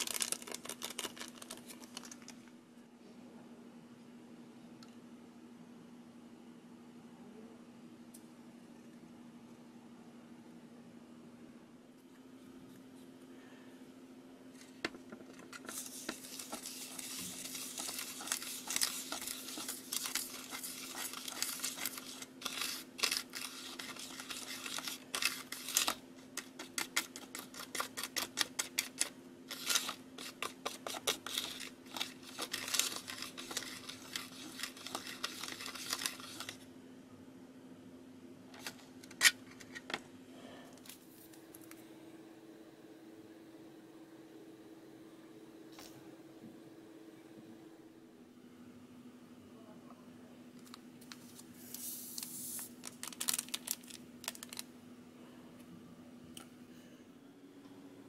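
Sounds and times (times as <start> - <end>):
plastic spoon scraping plastic tray: 15.3 - 36.6.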